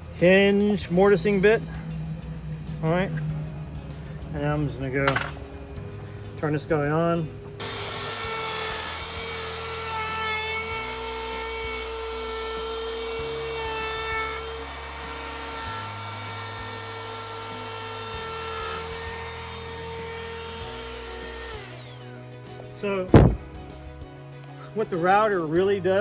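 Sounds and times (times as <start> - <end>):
router whining while cutting wood: 7.4 - 22.2.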